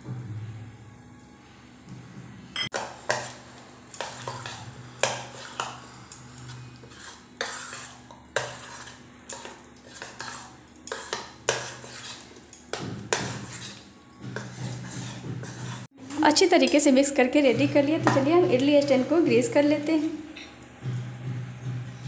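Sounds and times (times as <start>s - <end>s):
spoon scraping a metal pot: 2.7s - 15.9s.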